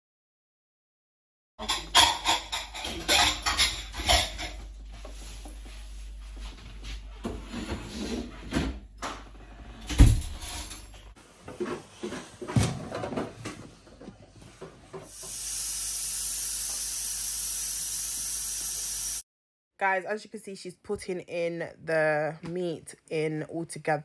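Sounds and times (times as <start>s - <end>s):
steady high hiss: 15.1s - 19.2s.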